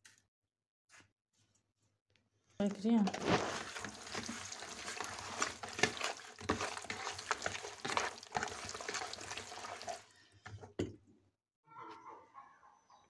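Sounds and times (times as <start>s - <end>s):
hands squishing raw fish: 2.6s - 10.1s.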